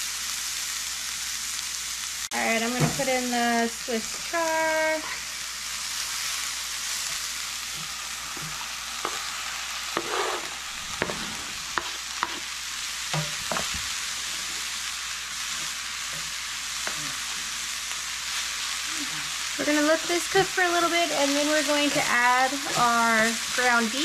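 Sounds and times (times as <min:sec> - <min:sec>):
greens sizzling in frying pan: 0:00.0 - 0:24.0
utensil knocking against pan: 0:13.2 - 0:13.7.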